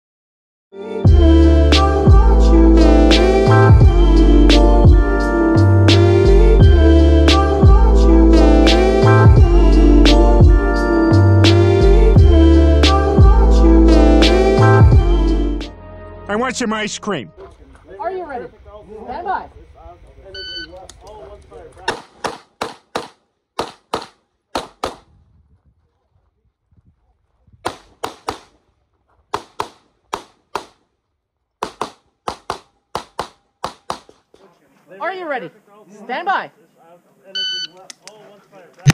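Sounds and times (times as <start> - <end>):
sliding deep bass notes: 1.1 - 16.3
pistol shots: 21.9 - 25.1, 27.6 - 28.6, 31.6 - 34.2.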